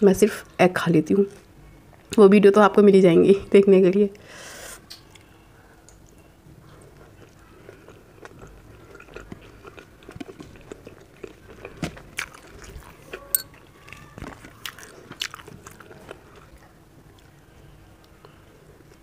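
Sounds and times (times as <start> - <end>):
close chewing with mouth smacks: 4.8 - 19.0.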